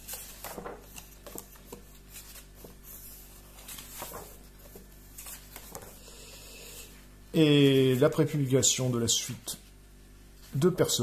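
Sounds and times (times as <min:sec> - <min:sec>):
paper pages rustling: 0:00.0 - 0:06.0
steady low hum: 0:00.0 - 0:11.0.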